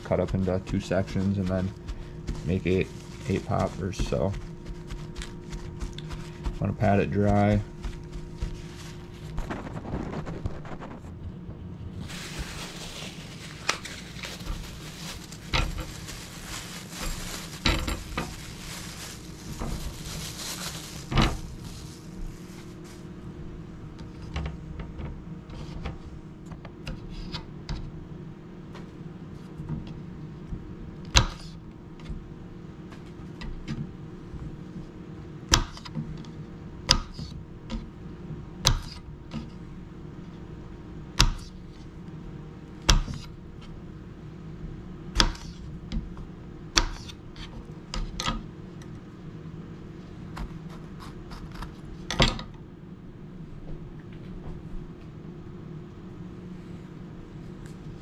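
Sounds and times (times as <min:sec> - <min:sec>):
paper towels rustling: 0:00.0 - 0:11.1, 0:11.9 - 0:23.3.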